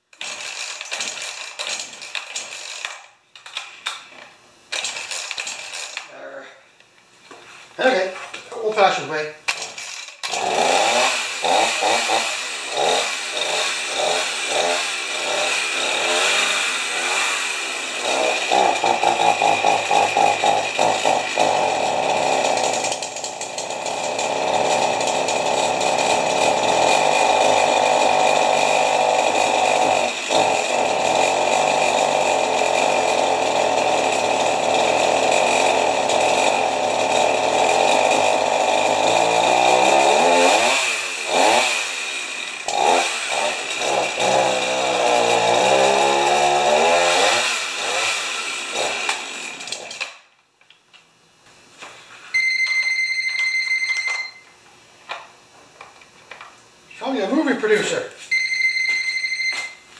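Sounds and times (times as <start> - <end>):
chainsaw engine revving: 0.1 - 3.1, 4.7 - 6.2, 9.5 - 50.3.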